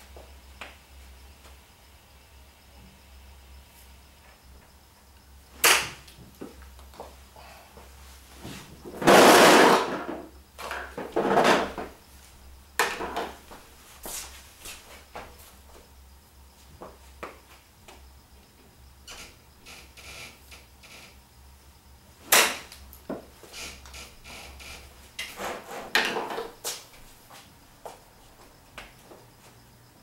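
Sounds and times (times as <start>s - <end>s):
knocks and rattles: 8.8s - 12.0s.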